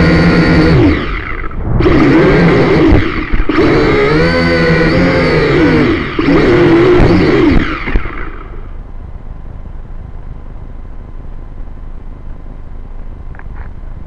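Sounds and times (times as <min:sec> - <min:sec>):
wind rumble on microphone: 0:00.0 - 0:05.0
drone propellers buzzing: 0:00.0 - 0:08.8.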